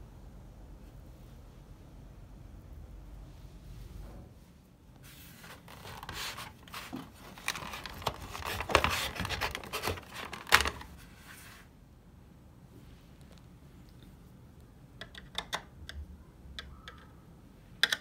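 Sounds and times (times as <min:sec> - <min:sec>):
hands scraping plastic casing: 0:05.4 - 0:11.0.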